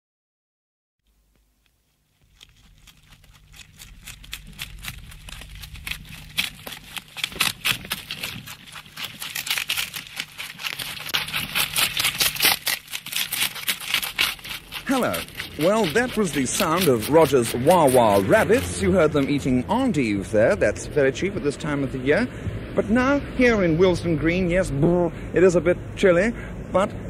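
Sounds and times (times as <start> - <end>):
faint low hum: 1.1 - 21.6
rabbits eating crunching: 1.1 - 22.1.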